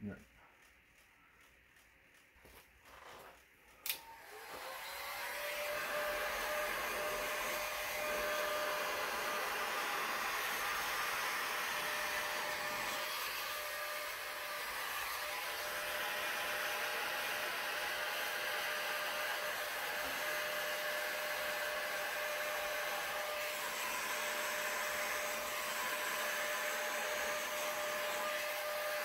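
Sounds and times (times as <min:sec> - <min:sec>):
heat gun blowing with whine: 0:02.5 - 0:29.0
heat gun switch click: 0:03.8 - 0:04.1.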